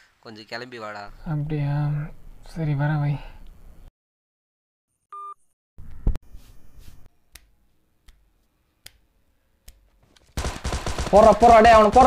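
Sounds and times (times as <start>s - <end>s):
electronic phone beep: 5.1s - 5.4s.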